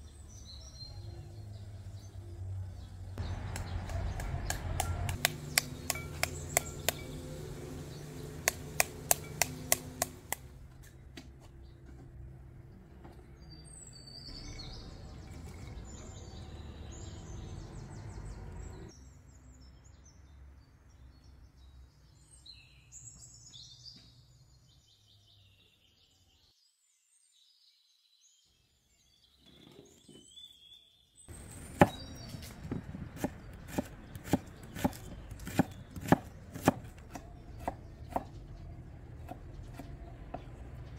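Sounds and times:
birds chirping: 0.0s - 26.8s, 28.2s - 40.9s
knife chopping on wooden board: 3.5s - 7.1s, 8.4s - 10.5s, 31.7s - 38.4s
knife tapping pomegranate: 3.5s - 7.2s, 8.4s - 10.5s.

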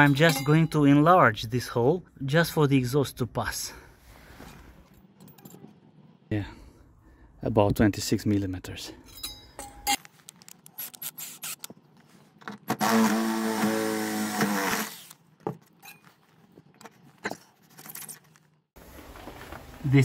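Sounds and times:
drill cutting steel sheet: 12.8s - 15.1s.

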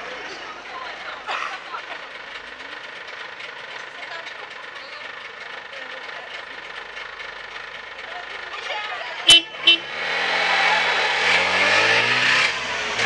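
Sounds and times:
faint voices: 0.0s - 2.9s, 7.9s - 9.9s
two-stroke engine idling: 0.0s - 11.8s.

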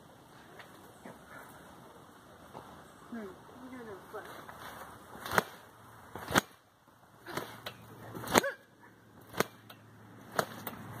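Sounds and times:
trampoline thumping: 4.5s - 11.0s.

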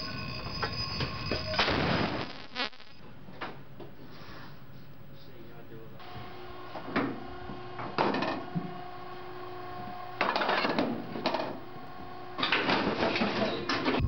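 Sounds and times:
machinery hum: 5.8s - 14.0s.

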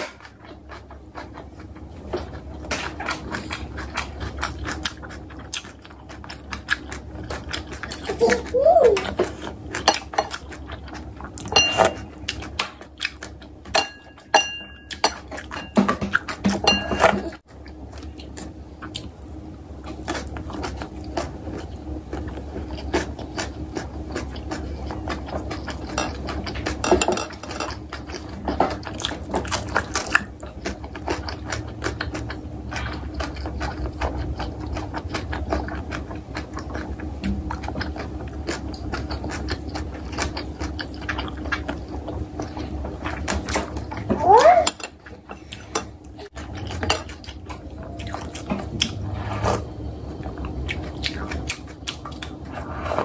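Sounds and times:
chewing food: 0.0s - 53.0s
steady low hum: 0.0s - 53.0s
utensils tapping ceramic bowls: 11.5s - 12.0s, 13.8s - 15.9s, 16.6s - 17.3s, 26.8s - 27.8s.

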